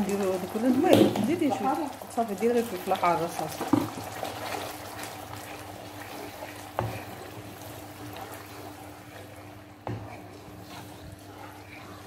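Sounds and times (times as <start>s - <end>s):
spoon stirring sauce: 5.6s - 12.0s.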